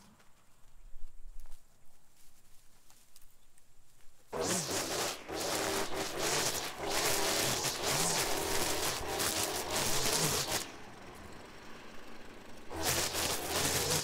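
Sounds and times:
gas string trimmer cutting weeds: 4.3s - 14.0s.

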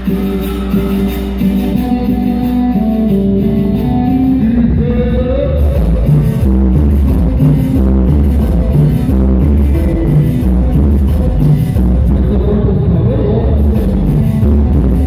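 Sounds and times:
cumbia dance music: 0.0s - 15.0s
guitar: 0.0s - 15.0s
person singing: 3.8s - 6.8s, 7.6s - 11.3s, 12.0s - 15.0s.

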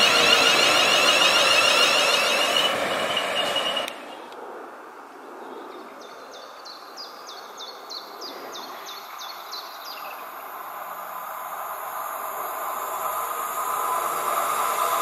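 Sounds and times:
songbird whistling: 0.0s - 4.0s
approaching train hiss: 0.0s - 4.5s, 9.8s - 15.0s
outdoor background noise: 0.0s - 15.0s.

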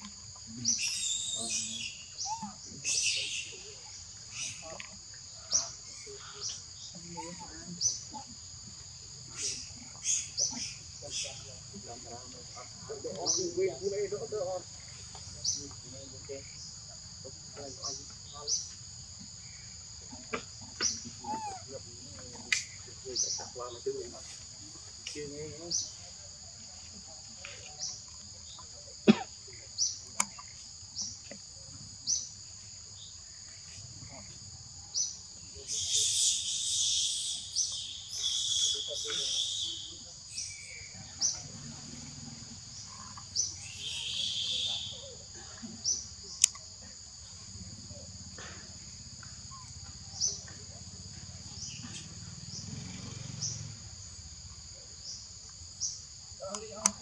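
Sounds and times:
insect drone: 0.0s - 57.0s
small click: 46.4s - 46.6s, 56.5s - 57.0s.

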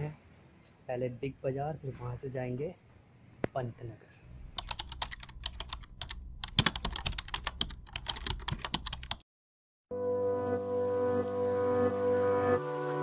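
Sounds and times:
keyboard typing clicks: 4.6s - 9.2s
music with sustained chords: 9.9s - 13.0s.

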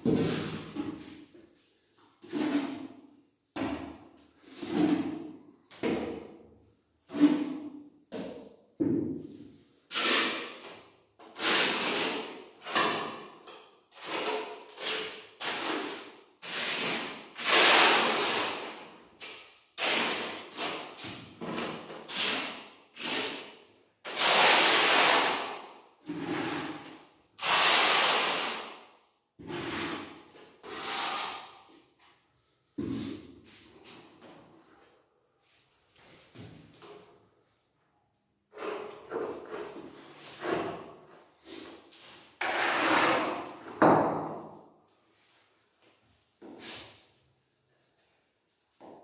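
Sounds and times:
trowel scraping tile adhesive: 2.2s - 3.1s, 4.4s - 5.4s, 9.8s - 31.9s, 38.5s - 43.8s.

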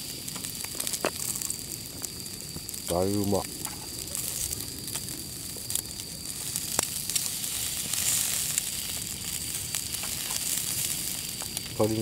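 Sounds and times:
meat sizzling on charcoal grill: 0.0s - 12.0s.

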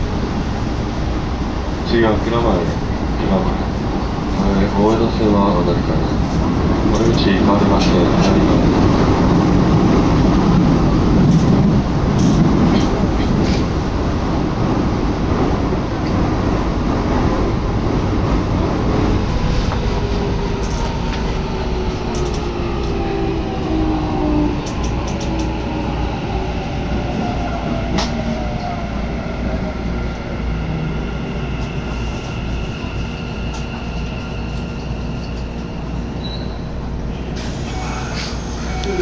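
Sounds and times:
subway train rumble: 0.0s - 39.0s
high brake squealing: 36.1s - 39.0s.

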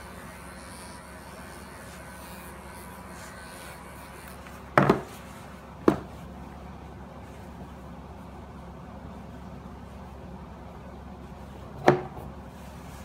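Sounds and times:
brush knocking on wooden table: 4.8s - 5.1s.

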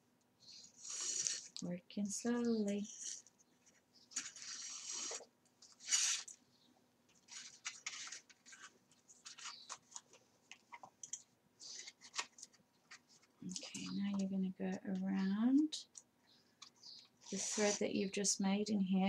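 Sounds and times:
paper scraping: 2.8s - 6.3s, 7.1s - 10.1s, 11.6s - 14.0s, 17.2s - 17.8s
paper pages rustling: 7.1s - 14.3s.

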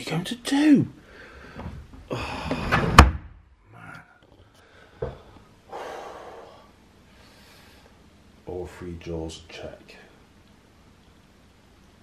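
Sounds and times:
wooden drawer sliding and slamming: 2.4s - 3.3s.

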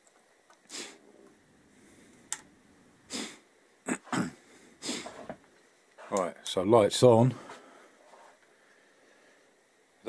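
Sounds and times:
man sniffing and breathing: 0.7s - 2.3s, 3.1s - 3.5s, 4.3s - 5.4s.

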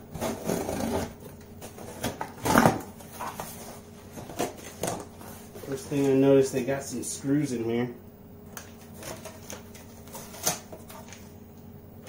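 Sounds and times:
tape and cardboard tearing: 0.1s - 3.5s, 9.0s - 11.2s.

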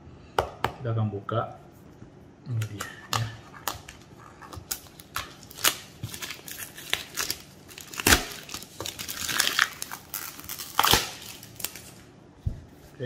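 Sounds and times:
plastic wrapping crackling: 3.6s - 12.1s
plastic wrapping ripping: 3.6s - 12.1s.

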